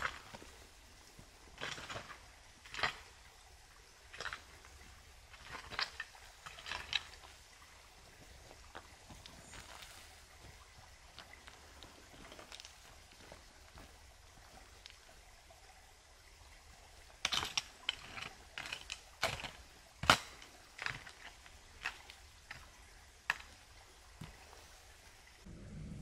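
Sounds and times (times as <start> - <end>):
sharp irregular knocks and cracks: 1.6 - 3.1, 5.3 - 7.4, 17.2 - 23.6.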